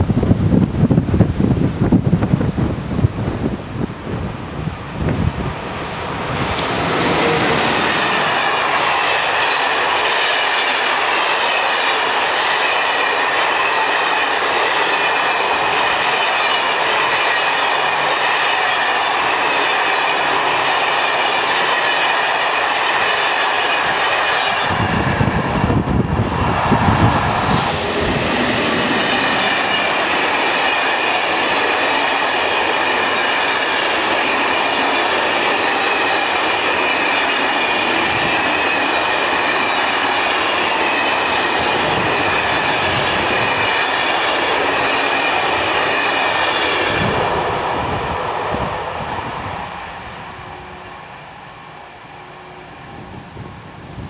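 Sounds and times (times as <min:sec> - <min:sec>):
train wheels rumbling on rail: 0:00.0 - 0:54.0
clickety-clack over rail joints: 0:05.0 - 0:50.1.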